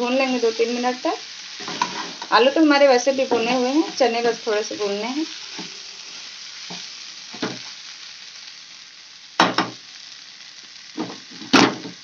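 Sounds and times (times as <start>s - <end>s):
food sizzling in oil: 0.0s - 12.0s
metal spatula scraping pan: 1.6s - 2.3s.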